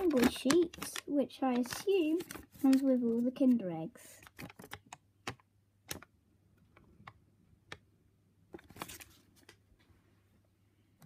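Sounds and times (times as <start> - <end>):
paper clicks and taps: 0.0 - 3.2, 4.2 - 6.1
paper rustle: 0.0 - 4.8, 8.6 - 9.6.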